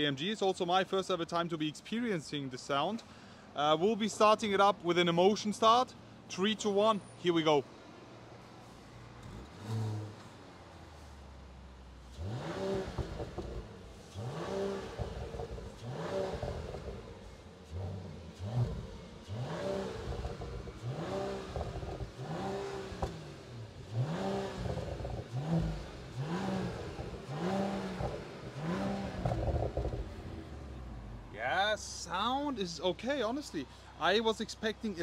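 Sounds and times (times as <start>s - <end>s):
car engine idling: 7.6s - 35.0s
car engine revving: 9.2s - 11.1s, 12.0s - 32.2s.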